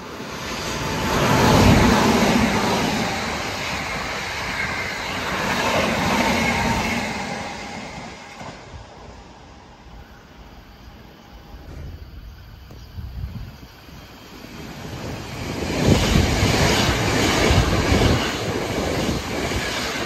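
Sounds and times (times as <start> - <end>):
electric train passing: 0.0 - 20.0.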